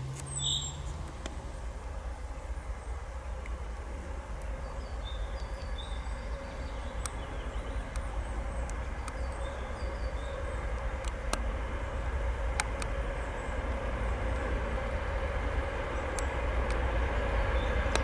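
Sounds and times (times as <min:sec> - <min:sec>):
diesel locomotive engine rumble: 0:00.0 - 0:18.0.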